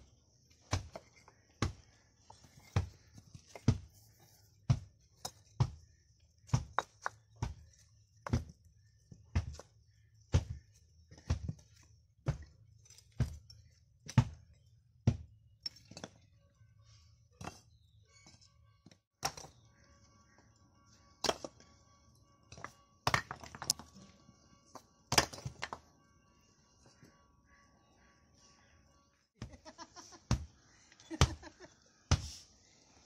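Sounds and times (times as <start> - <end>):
bricks clunking onto bricks: 4.6 - 16.3, 22.5 - 24.0, 25.1 - 25.8.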